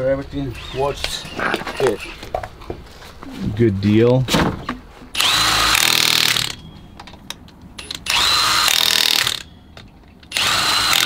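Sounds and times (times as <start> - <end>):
impact wrench bursts: 5.2 - 6.7, 7.8 - 9.5, 10.3 - 11.0.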